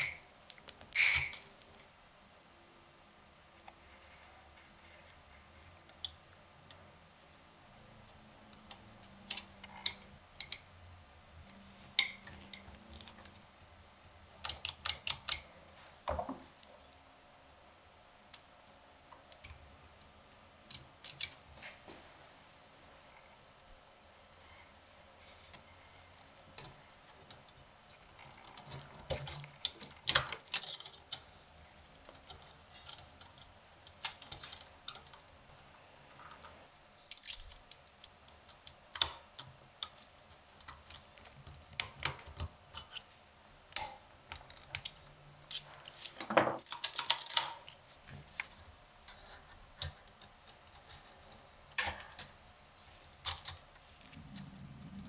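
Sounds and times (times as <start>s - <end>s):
typewriter parts clicking: 14.4s - 15.5s, 28.2s - 31.3s, 37.1s - 40.0s, 46.6s - 47.8s, 53.2s - 53.6s.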